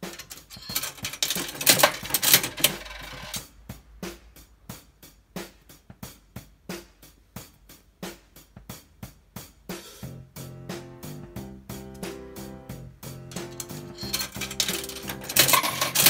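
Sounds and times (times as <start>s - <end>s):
vending machine handle rattling: 0.0s - 3.4s, 13.4s - 16.0s
music with steady drum beat: 0.0s - 16.0s.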